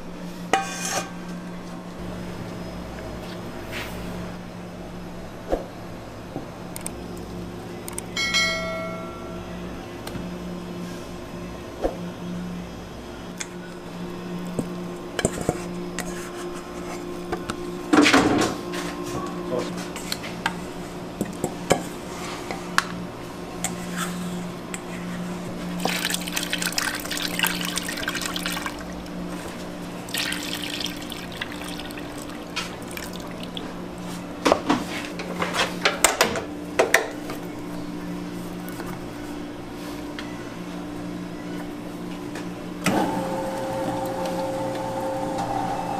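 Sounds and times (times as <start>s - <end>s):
milk pouring and splashing: 25.8s - 29.1s, 30.0s - 33.8s.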